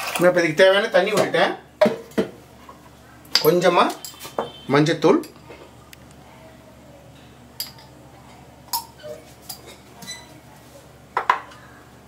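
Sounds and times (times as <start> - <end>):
kitchen utensils clinking: 0.0 - 0.4, 3.3 - 4.5, 8.7 - 10.3.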